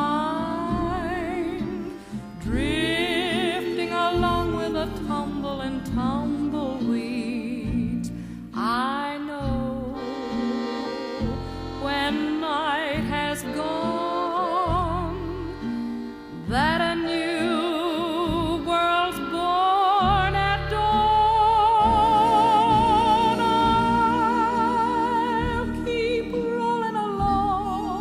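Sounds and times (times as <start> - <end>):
vibrato melody: 0.0 - 8.0, 8.6 - 28.0
sustained low chords: 13.0 - 28.0.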